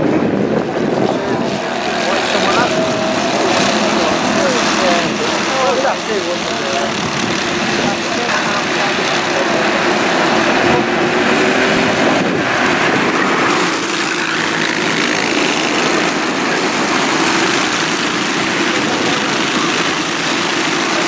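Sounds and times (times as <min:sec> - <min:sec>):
go-kart engines buzzing: 0:00.0 - 0:21.0.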